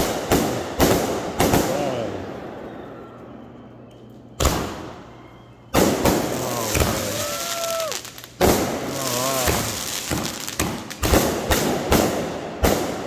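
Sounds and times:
firework cake firing: 5.7 - 13.0.

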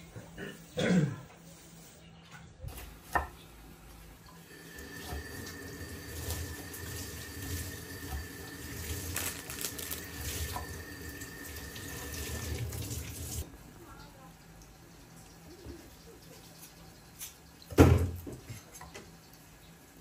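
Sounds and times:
water running from a tap: 4.2 - 13.5.

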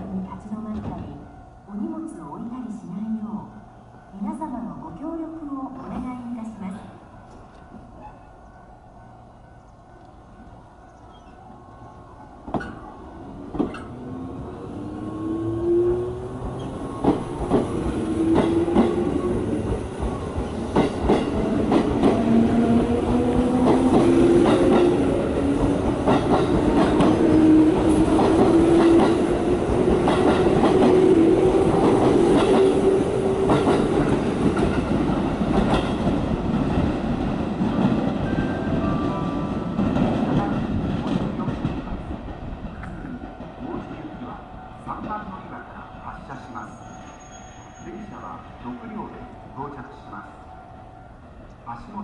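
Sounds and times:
wheels clacking over rail joints: 16.4 - 38.3.

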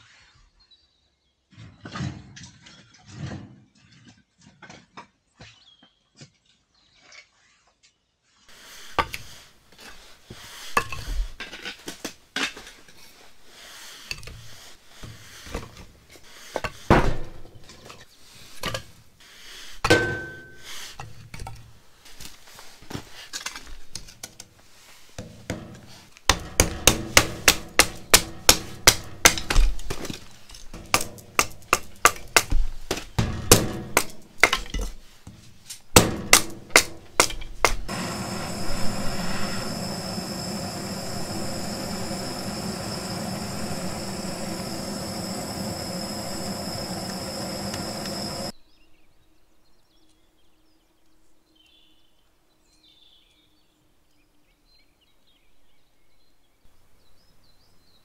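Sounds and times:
gas torch hissing: 8.5 - 11.4, 13.5 - 15.6, 37.6 - 48.6
blade splitting firewood: 8.5 - 19.0, 25.1 - 48.5.

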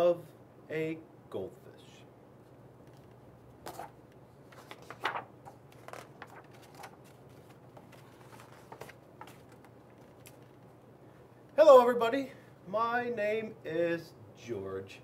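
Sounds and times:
book pages turning: 2.8 - 10.8.

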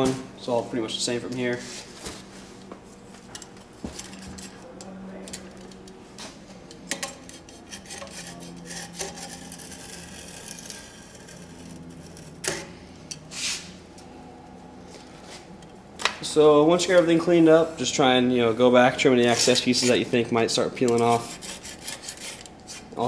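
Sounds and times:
knife clicking and scraping tape: 7.0 - 13.3, 20.8 - 22.9
loud rasping scrapes: 7.3 - 12.4, 20.9 - 23.0.

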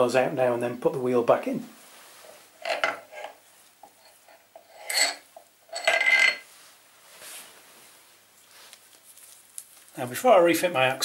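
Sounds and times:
metal parts clinking and scraping: 2.6 - 6.4.

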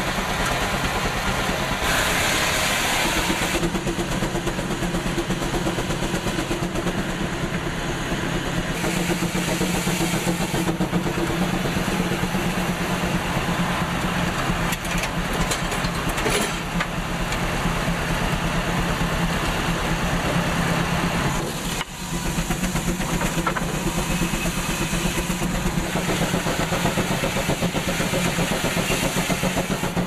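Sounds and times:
sawmill machinery engine drone: 0.0 - 30.0
loud hissing noise: 0.1 - 3.7, 8.6 - 14.3.

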